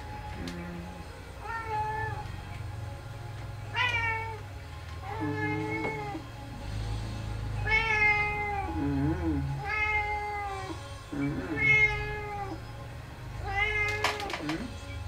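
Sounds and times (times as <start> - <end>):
cat meowing: 0.4 - 2.2, 3.7 - 4.4, 5.0 - 6.3, 7.6 - 12.6, 13.4 - 14.7
cat chirping: 7.6 - 12.6.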